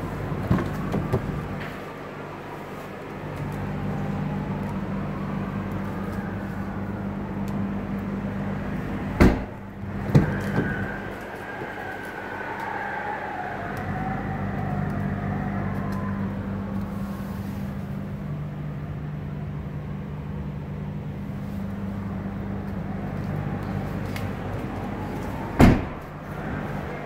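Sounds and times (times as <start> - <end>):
truck engine idling: 0.0 - 12.6
truck door thud: 9.2 - 10.7, 25.6 - 26.1.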